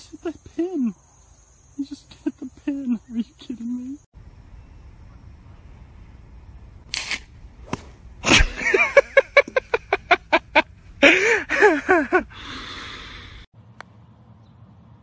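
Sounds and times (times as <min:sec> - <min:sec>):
people laughing: 0:08.2 - 0:12.3.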